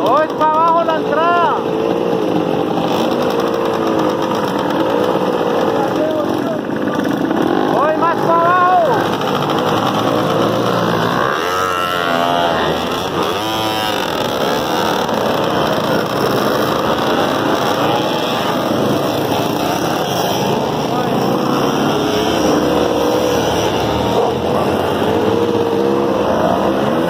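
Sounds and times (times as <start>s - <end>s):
dirt bike engines: 0.0s - 27.0s.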